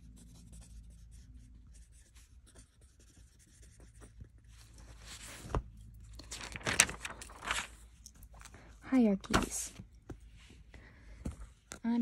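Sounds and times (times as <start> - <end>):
pen scratching on paper: 0.0 - 4.2
paper rustle: 1.8 - 8.6.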